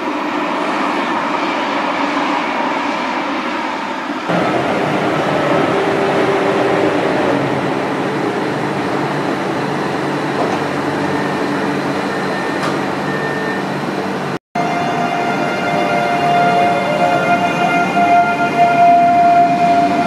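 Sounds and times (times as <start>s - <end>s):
train equipment humming: 4.3s - 20.0s.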